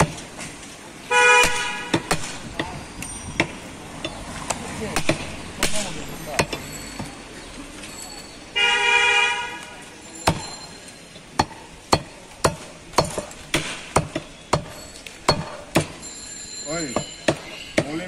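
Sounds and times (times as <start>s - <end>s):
vehicle horn honking: 1.1s - 2.0s, 8.6s - 9.8s
cleaver chopping meat on wood: 1.4s - 2.8s, 5.0s - 6.6s, 10.3s - 10.5s, 11.4s - 16.0s, 17.3s - 18.0s.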